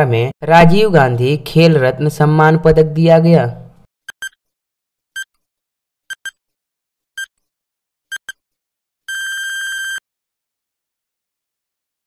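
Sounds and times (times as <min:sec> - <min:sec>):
short electronic beeps: 0:06.1 - 0:06.4, 0:08.1 - 0:08.4, 0:09.1 - 0:10.0.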